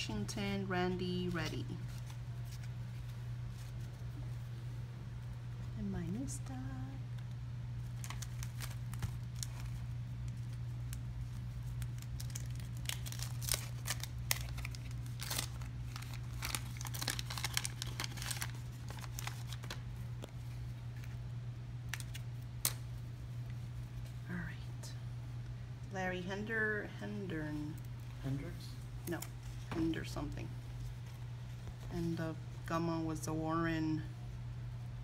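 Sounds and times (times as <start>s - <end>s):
low electrical hum: 0.0s - 35.0s
wax paper wrapper tearing and crinkling: 7.2s - 21.2s, 21.9s - 22.8s.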